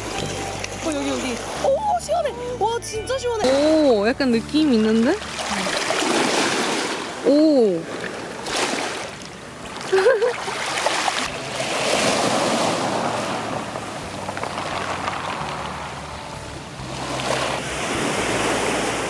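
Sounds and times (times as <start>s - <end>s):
waves on pebble beach: 5.0s - 19.0s.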